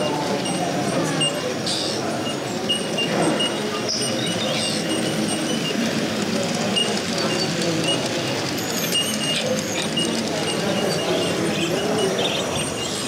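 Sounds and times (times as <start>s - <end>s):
crowd hubbub in hall: 0.0s - 13.0s
model train running on track: 0.0s - 13.0s.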